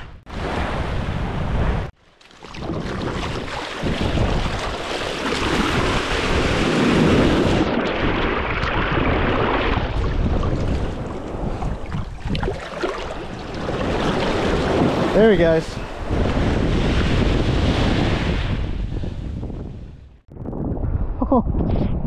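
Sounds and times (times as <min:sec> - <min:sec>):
wind buffeting microphone: 0:00.0 - 0:22.0
surf washing on beach: 0:02.5 - 0:19.3.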